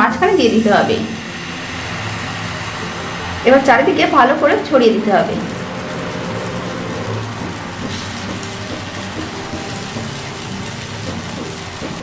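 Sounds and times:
low hum: 0.0 - 8.4
batter sizzling in frying pan: 0.2 - 12.0.

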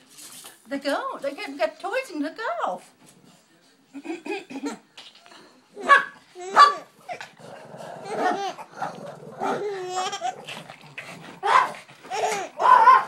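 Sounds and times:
dogs barking: 5.8 - 7.0, 11.4 - 13.0
baby laughing: 8.0 - 8.7, 9.6 - 10.5, 12.1 - 12.8.

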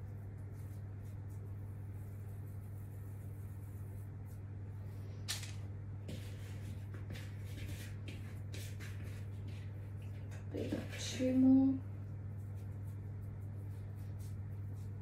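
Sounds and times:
hands rolling dough: 0.0 - 4.6, 6.0 - 15.0
steady low hum: 0.0 - 15.0.

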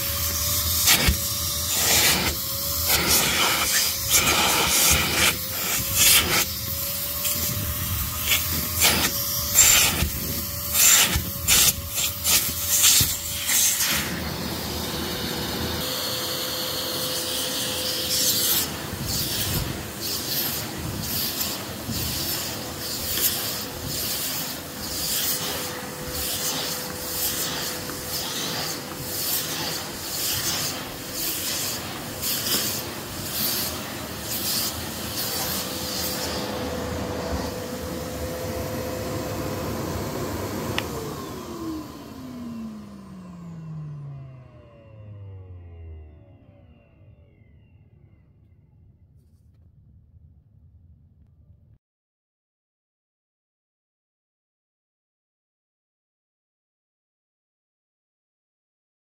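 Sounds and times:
vacuum cleaner running: 0.0 - 47.7
floor tool rubbing on carpet: 0.6 - 14.2, 17.6 - 38.3.

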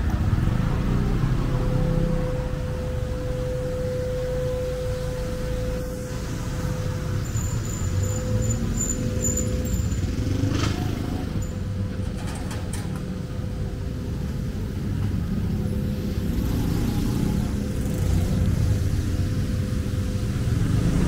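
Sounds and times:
steady hum: 0.0 - 10.4
street traffic rumbling: 0.0 - 21.0.

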